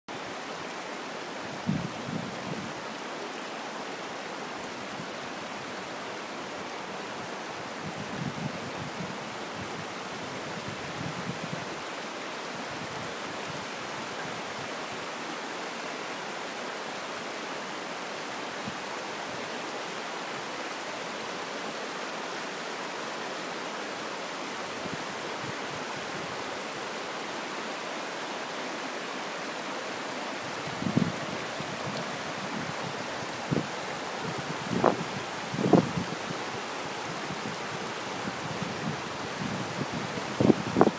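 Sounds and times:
water rushing over rocks: 0.1s - 40.9s.

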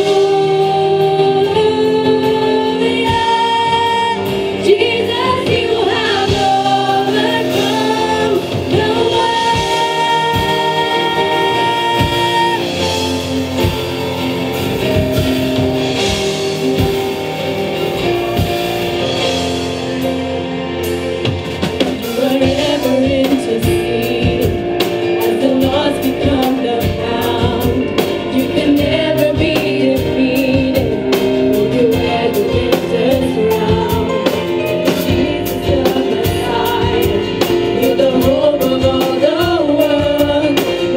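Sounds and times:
women singing into microphones: 0.0s - 13.2s, 22.1s - 40.9s
keyboard and band playing: 0.0s - 40.9s.

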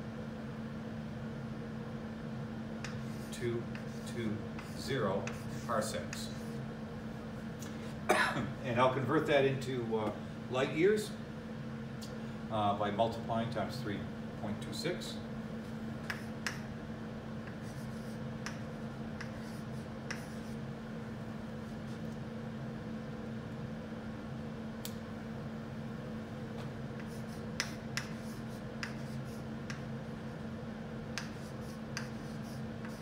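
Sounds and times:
low room hum: 0.0s - 33.0s
chalk tapping on chalkboard: 2.8s - 6.5s, 16.0s - 16.6s, 17.4s - 20.5s, 27.0s - 29.8s, 31.2s - 33.0s.

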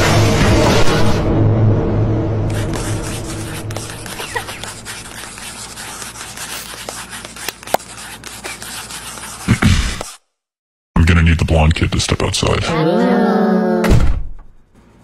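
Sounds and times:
pencils scratching on paper: 2.5s - 10.2s.

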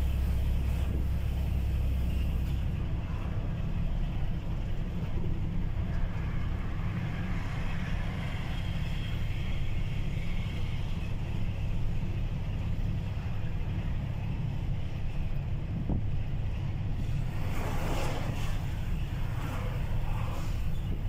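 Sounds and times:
truck engine rumble: 0.0s - 21.0s
tyre and wind hiss: 15.5s - 21.0s.

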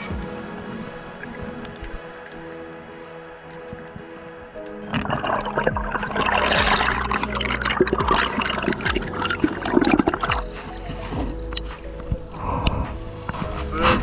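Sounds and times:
underwater air bubbles gurgling: 4.6s - 11.6s.

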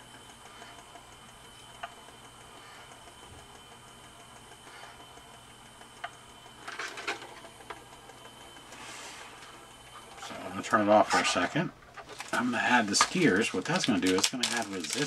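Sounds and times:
small motor whine: 0.0s - 11.0s.

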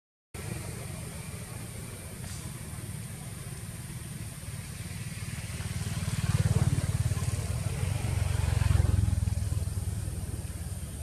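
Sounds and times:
motorbike engine running: 0.4s - 11.0s.

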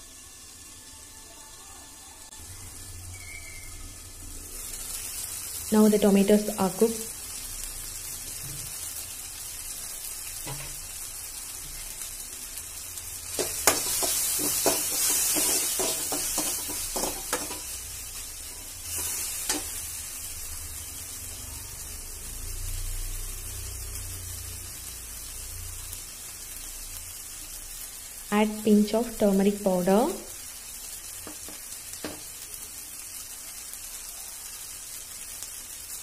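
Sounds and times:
food sizzling in a pan: 0.0s - 36.0s
steel spoon scraping a pan: 13.4s - 17.8s.

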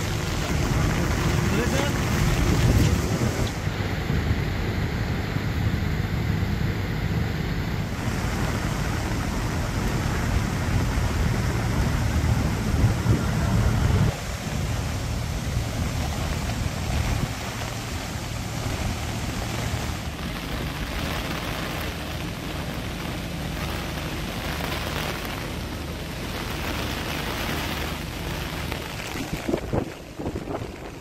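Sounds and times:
wind buffeting microphone: 0.0s - 4.5s, 8.0s - 31.0s
rain and floodwater rushing: 0.0s - 31.0s.

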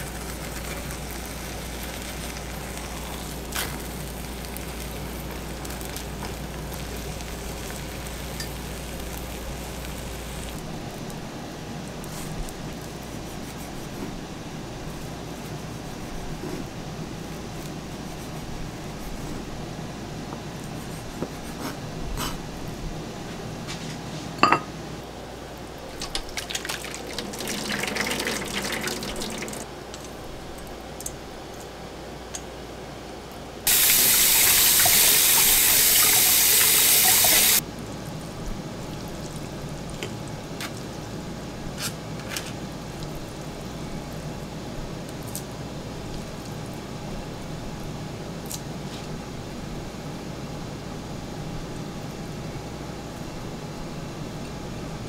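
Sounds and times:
tap water pouring into strainer: 26.0s - 29.6s.

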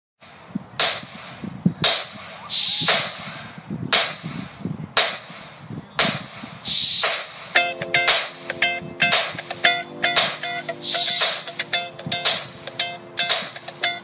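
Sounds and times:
clap-like percussion hits: 0.8s - 3.3s, 4.0s - 8.5s, 9.1s - 9.5s, 10.2s - 12.6s, 13.2s - 13.7s.

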